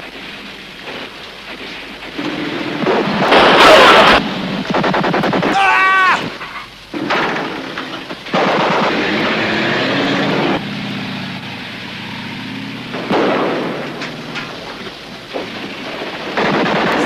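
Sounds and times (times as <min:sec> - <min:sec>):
loud blast with rumble: 0:12.8 - 0:17.0.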